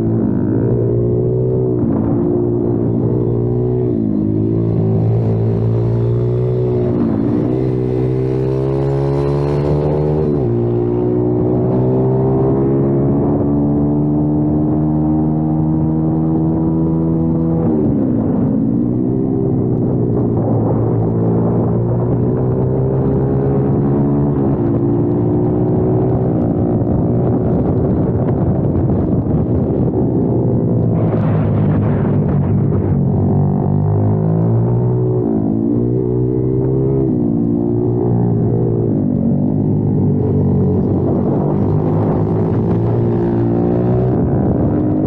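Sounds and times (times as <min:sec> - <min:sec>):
motorbike engine revving: 0:00.0 - 0:17.6, 0:32.8 - 0:45.0.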